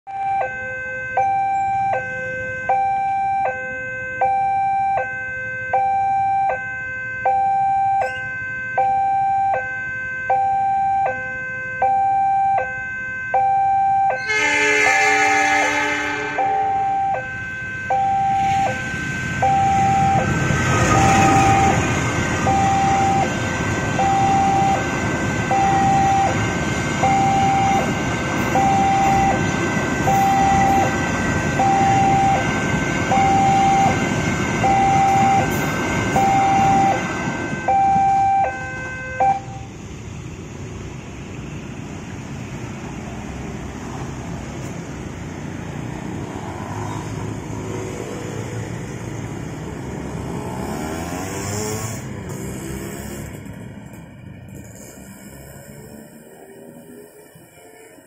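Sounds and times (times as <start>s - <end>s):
level crossing warning alarm: 0.1s - 39.8s
train horn: 14.2s - 16.7s, 35.1s - 39.7s
train passing on rails: 14.2s - 58.0s.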